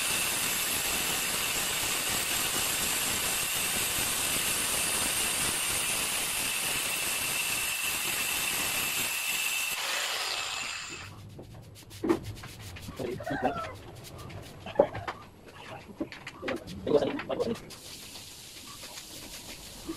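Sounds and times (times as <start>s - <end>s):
angle grinder cutting stone: 0.0s - 11.1s
grinder spinning down: 0.0s - 11.1s.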